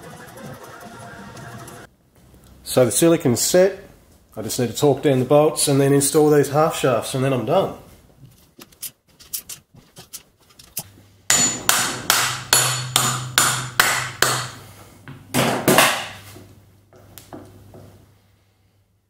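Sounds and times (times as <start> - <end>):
hammer striking metal: 11.3 - 14.6.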